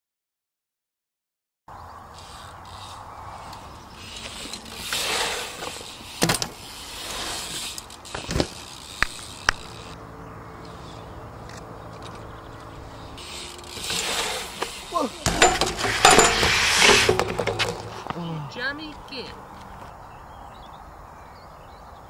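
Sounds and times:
bike tyres rolling on concrete: 0:02.0 - 0:20.2
bike knocking on concrete: 0:13.2 - 0:18.2.

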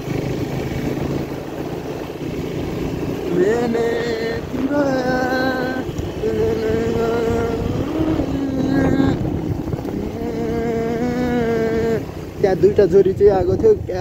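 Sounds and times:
motorbike engine: 0:00.0 - 0:14.0
wind rumble on microphone: 0:00.0 - 0:14.0.

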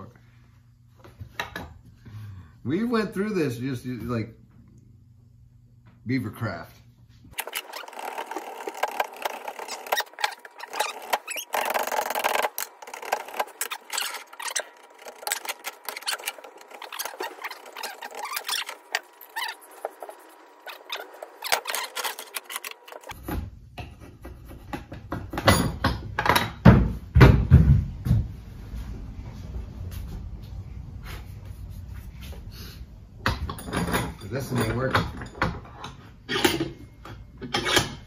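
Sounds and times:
draw knife scraping wood: 0:07.4 - 0:23.2.

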